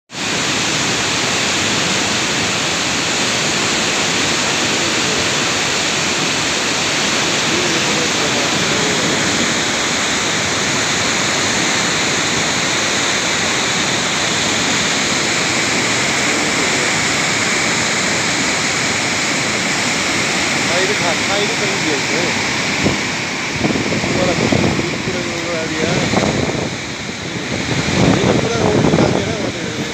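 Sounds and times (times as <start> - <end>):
floodwater rushing: 0.1 - 29.9.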